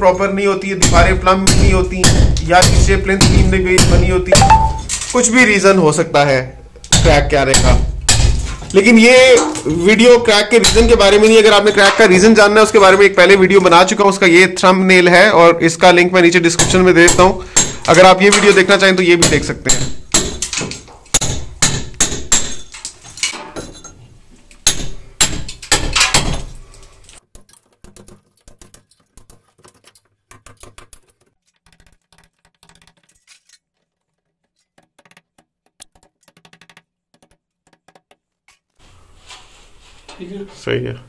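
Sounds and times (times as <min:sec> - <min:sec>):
hammer striking brick wall: 0:00.8 - 0:04.9, 0:06.9 - 0:09.8, 0:10.4 - 0:12.0, 0:16.5 - 0:23.4, 0:24.6 - 0:26.5.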